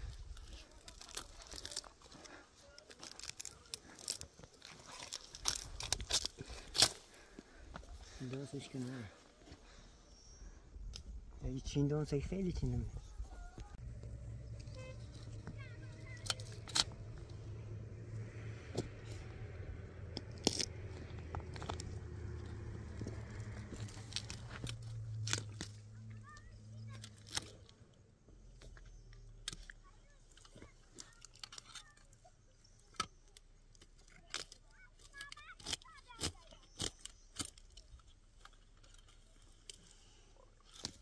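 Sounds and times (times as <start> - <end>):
stones shifting underfoot: 0.0 - 9.8, 18.5 - 26.0
plant stems snapping and tearing: 0.1 - 7.4, 16.2 - 17.0, 18.7 - 25.9, 27.0 - 27.8, 33.0 - 39.9, 40.6 - 41.0
low steady hum: 9.6 - 29.5.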